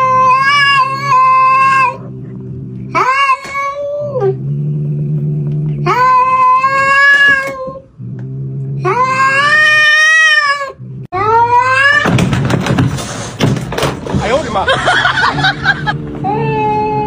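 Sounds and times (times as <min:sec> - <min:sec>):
cat yowling: 0:00.0 - 0:02.0, 0:02.9 - 0:04.4, 0:05.8 - 0:07.8, 0:08.8 - 0:12.2
cat growling: 0:00.0 - 0:12.0.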